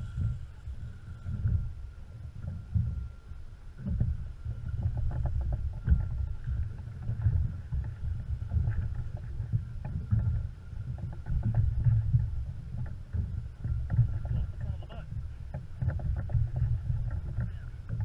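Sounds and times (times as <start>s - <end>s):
wind rumble on microphone: 0.0s - 18.0s
water slapping against boat hull: 3.8s - 18.0s.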